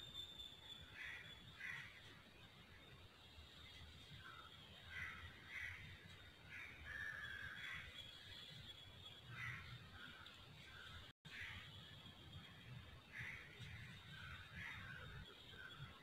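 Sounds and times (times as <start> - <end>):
crows cawing: 1.0 - 2.0, 4.3 - 7.9, 9.3 - 10.2, 13.1 - 15.2.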